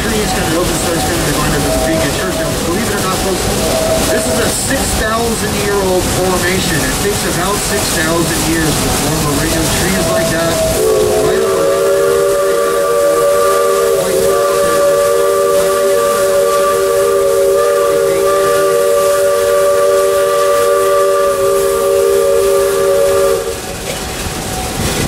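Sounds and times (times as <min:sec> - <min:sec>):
steam locomotive chime whistle: 0:00.0 - 0:05.4, 0:09.2 - 0:23.7
steam hissing: 0:00.0 - 0:25.0
train running noise: 0:00.0 - 0:25.0.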